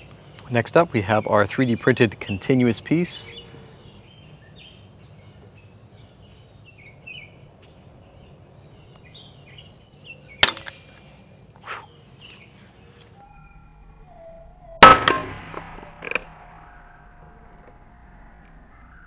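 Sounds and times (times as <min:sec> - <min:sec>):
birds chirping: 0:00.0 - 0:14.3
plastic bar snapping: 0:10.4 - 0:10.8.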